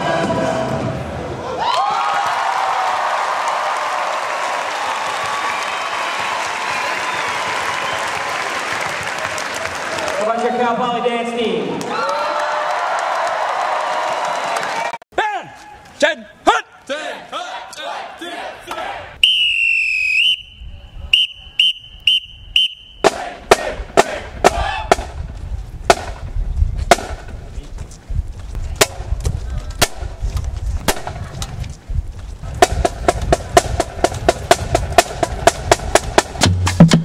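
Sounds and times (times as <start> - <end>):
whistle blasts: 19.2 - 23.2
snare drums: 23.0 - 25.2, 25.9 - 26.2, 26.9 - 27.3, 32.6 - 37.0
bass drums: 23.0 - 37.0.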